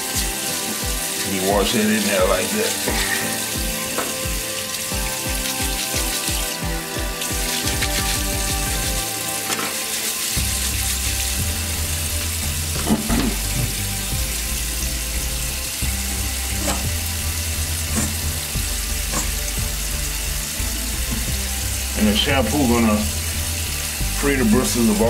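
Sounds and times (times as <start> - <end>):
tap water splashing into sink: 0.0 - 11.5, 12.7 - 14.3, 21.0 - 21.4
brush bristles scrubbing: 0.0 - 11.6
background music with bass: 0.0 - 25.0.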